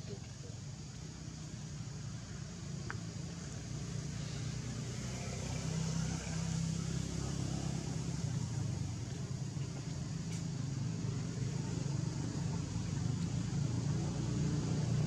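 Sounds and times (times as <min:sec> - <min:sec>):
background hiss: 0:00.0 - 0:15.0
low engine hum: 0:00.0 - 0:15.0.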